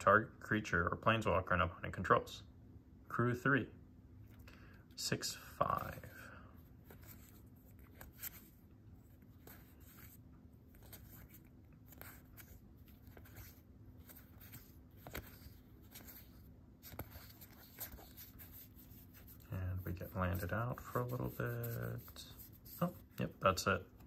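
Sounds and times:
low steady hum: 0.0s - 24.0s
cards sliding and flicking: 6.9s - 8.6s, 9.2s - 23.6s.

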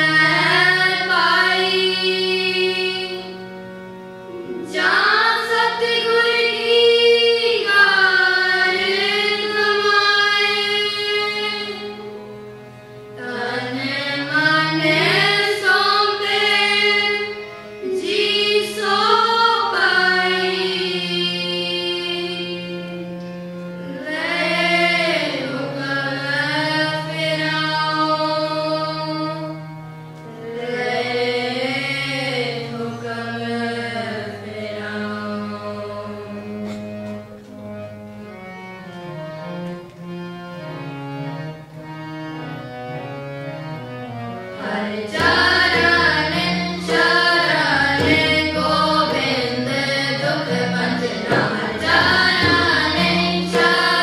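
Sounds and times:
children singing in unison: 0.0s - 3.4s, 4.4s - 12.1s, 13.2s - 23.0s, 23.9s - 29.6s, 30.3s - 36.8s, 44.5s - 54.0s
harmonium notes: 0.0s - 54.0s
tabla: 44.6s - 54.0s.

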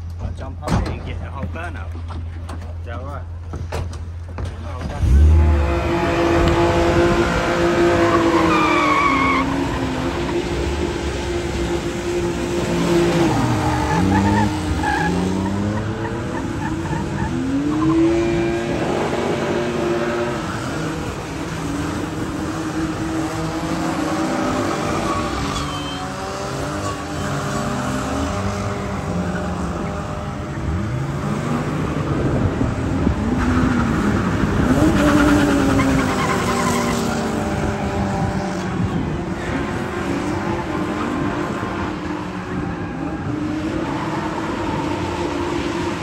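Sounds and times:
car engines revving: 0.0s - 46.0s
tyres squealing: 8.0s - 10.0s, 24.2s - 27.6s.

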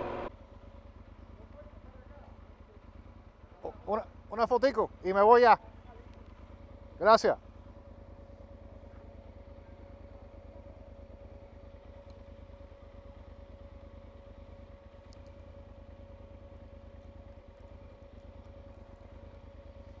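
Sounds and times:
faint steady hum: 0.0s - 20.0s
motorcycle engine idling: 0.0s - 20.0s.

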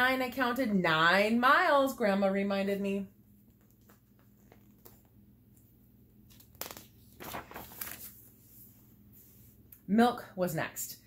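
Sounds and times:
paper book rustling: 3.5s - 9.5s.

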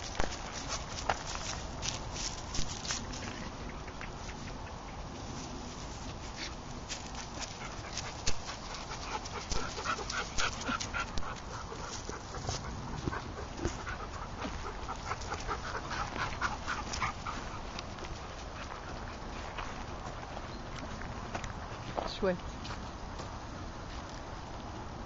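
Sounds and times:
footsteps on gravel: 0.0s - 3.4s
dog panting: 6.4s - 19.9s.

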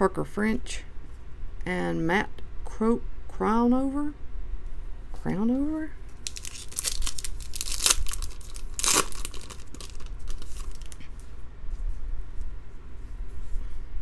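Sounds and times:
foil rustling: 6.1s - 11.1s
foil wrapper tearing and crackling: 6.2s - 11.0s.

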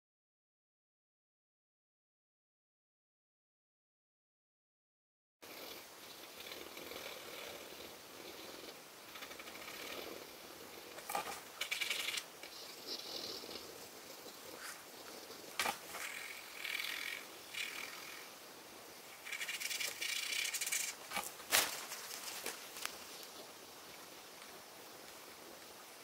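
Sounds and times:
pencil scratching on paper: 11.0s - 12.7s, 19.2s - 21.3s.

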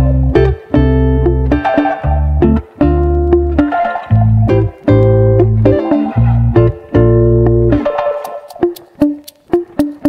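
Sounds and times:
short plucked notes: 0.0s - 10.0s
wood-block-like clicks: 7.8s - 10.0s.

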